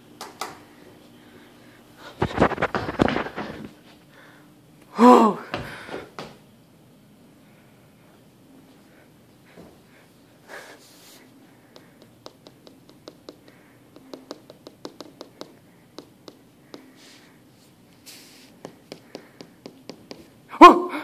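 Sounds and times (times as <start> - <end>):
fingertips tapping on hard surface: 11.7 - 16.9, 18.6 - 20.4.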